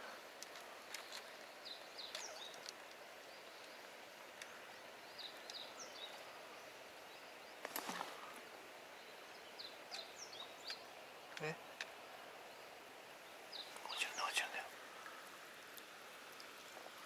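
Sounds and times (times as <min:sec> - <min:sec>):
small bird chirping: 0:00.9 - 0:08.3, 0:09.0 - 0:15.2.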